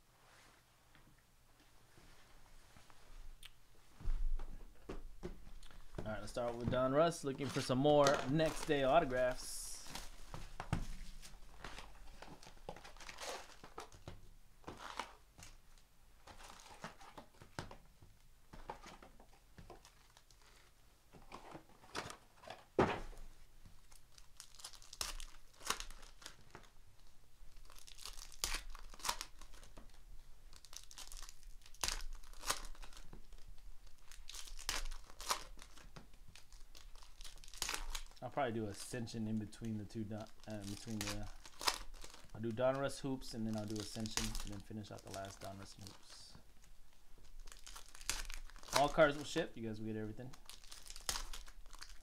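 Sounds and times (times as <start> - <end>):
foil packs crinkling: 5.6 - 15.6, 18.8 - 20.8, 23.8 - 52.0.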